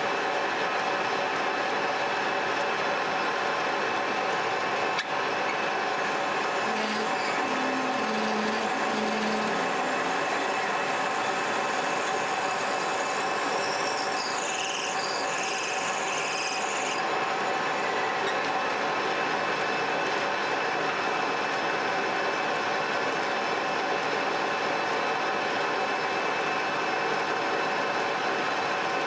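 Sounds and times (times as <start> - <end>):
metal lathe running: 0.0 - 29.0
high-pitched metal cutting: 5.0 - 19.7.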